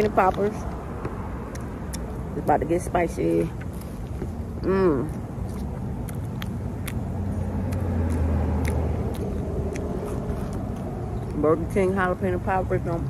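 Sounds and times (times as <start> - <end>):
person chewing crunchy food: 0.0 - 2.3, 3.5 - 11.4
car engine rumbling: 0.0 - 13.0.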